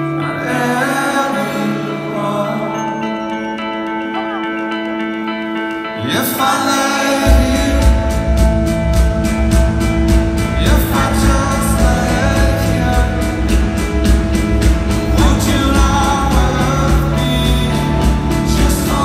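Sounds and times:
person singing: 0.0 - 9.1, 10.2 - 19.0
live rock band: 0.0 - 19.0
drums and bass on steady beat: 7.3 - 19.0.

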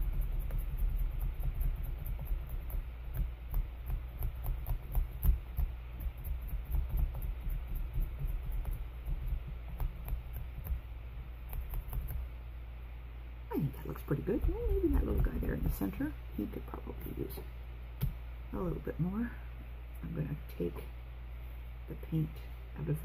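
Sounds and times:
sponge dabbing paint: 0.0 - 12.4.

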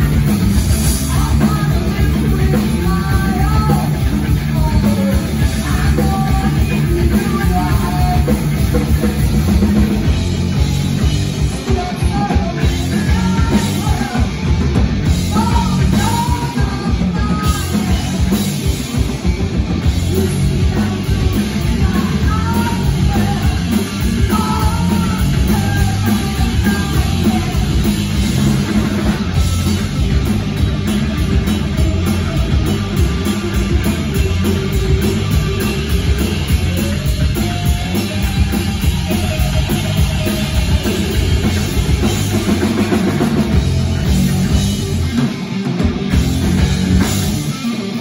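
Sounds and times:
drum kit: 0.0 - 48.0
electric bass: 0.0 - 48.0
electric guitar: 0.0 - 48.0
woman singing: 1.0 - 8.8, 11.5 - 14.4, 15.3 - 18.5, 20.0 - 29.0.

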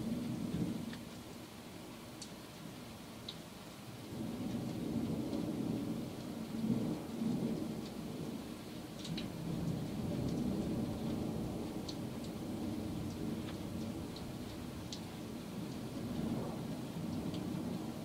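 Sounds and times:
rolling thunder: 15.9 - 18.0.

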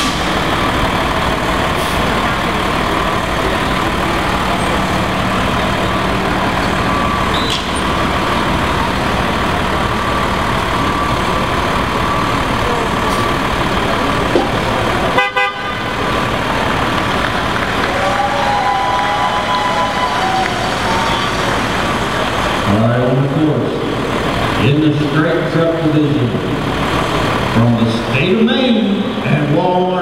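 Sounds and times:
steady high tone: 0.0 - 17.0
diesel truck engine running: 0.0 - 30.0.

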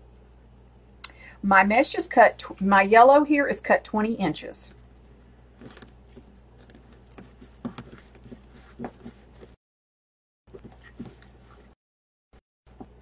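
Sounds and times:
craft materials rustling and tapping: 5.6 - 9.6, 10.5 - 11.7.

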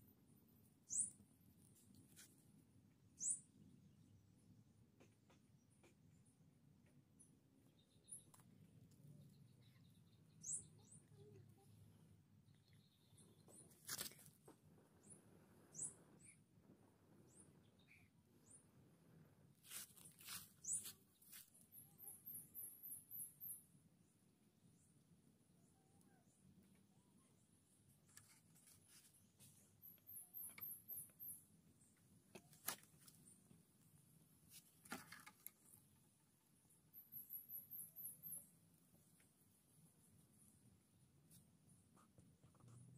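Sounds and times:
faint high bird chirps: 0.0 - 1.3, 3.1 - 4.1, 7.2 - 14.0, 15.0 - 16.5, 17.2 - 18.7, 20.0 - 32.0, 36.6 - 39.0.

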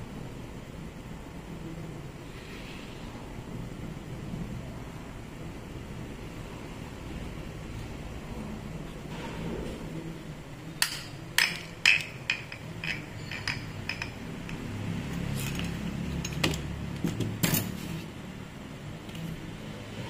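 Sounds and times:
steady low hum: 0.0 - 20.0
metallic clinks of tool handling: 10.8 - 14.6.

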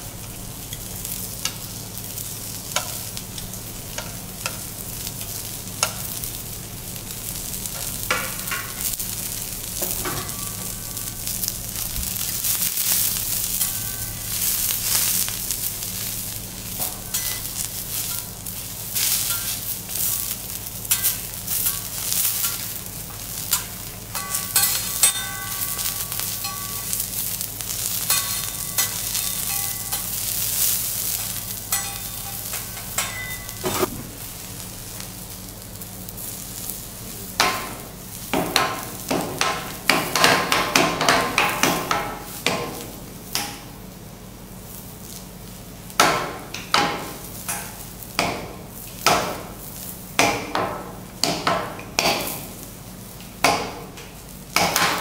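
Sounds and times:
vegetables sizzling on a griddle: 0.0 - 55.0
metal spatulas scraping and clacking: 16.8 - 18.3, 19.0 - 19.6, 20.9 - 22.7, 23.4 - 27.0, 28.0 - 30.3, 31.2 - 33.9.

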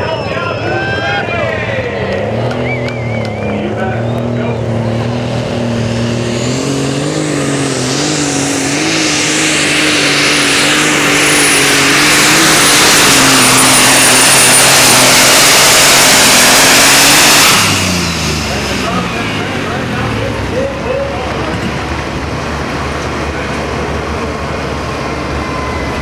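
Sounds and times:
pulling tractor engine at full throttle: 0.0 - 26.0
high whistle: 2.6 - 3.6.

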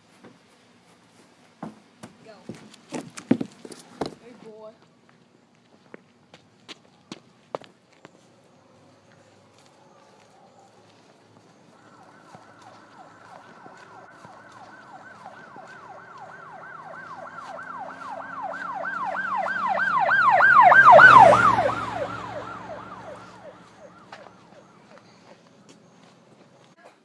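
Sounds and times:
vehicle engine: 8.1 - 26.8
emergency siren wailing: 9.0 - 26.2.

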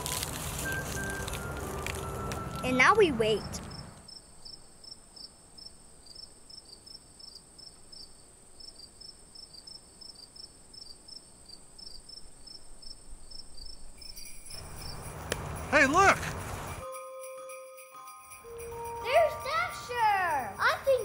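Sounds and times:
crickets chirping: 3.4 - 17.0.

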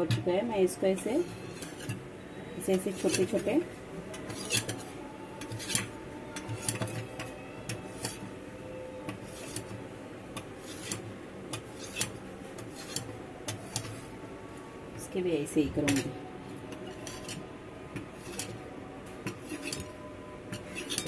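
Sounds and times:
knife scraping on plate: 1.2 - 2.0, 2.7 - 8.3, 9.1 - 9.8, 10.6 - 14.1, 15.9 - 17.4, 18.0 - 18.6, 19.2 - 19.9, 20.5 - 21.0.

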